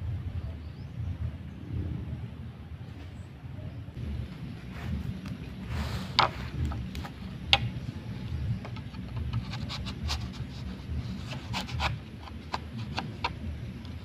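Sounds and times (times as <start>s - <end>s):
low steady rumble: 0.0s - 14.0s
scraping and knocking on bamboo: 4.4s - 14.0s.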